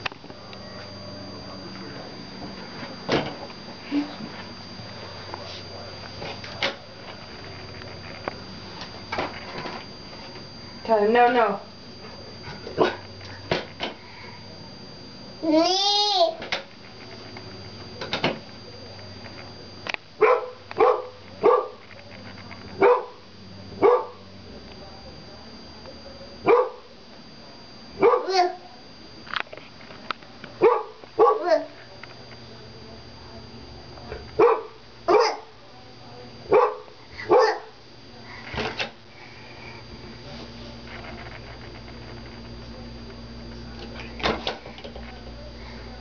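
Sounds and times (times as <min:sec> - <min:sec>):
dog barking: 0:20.2 - 0:21.8, 0:22.8 - 0:23.2, 0:23.8 - 0:24.2, 0:26.5 - 0:26.9, 0:28.0 - 0:28.4, 0:30.6 - 0:31.5, 0:34.4 - 0:35.5, 0:36.5 - 0:37.7.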